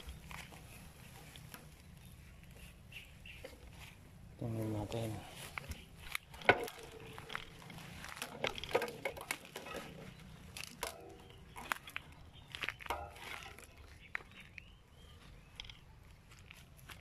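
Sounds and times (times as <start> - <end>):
foliage brushing: 0.0 - 15.4
footsteps crunching dry leaves: 0.0 - 17.0.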